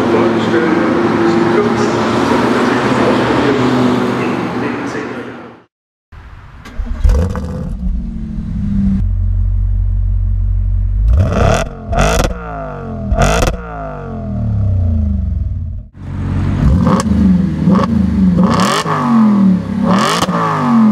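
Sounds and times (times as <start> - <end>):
car engine starting and idling: 6.2 - 20.0
engine revving: 6.6 - 20.9.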